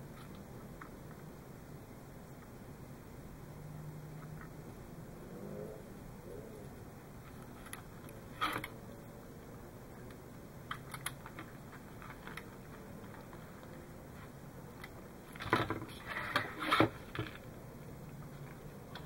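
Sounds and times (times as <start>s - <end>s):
hands handling wires: 10.0s - 17.6s.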